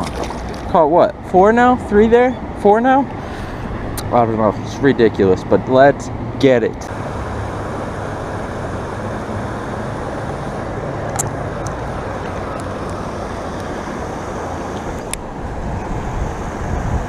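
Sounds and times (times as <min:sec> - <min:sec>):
small waterfall rushing: 0:06.9 - 0:17.0.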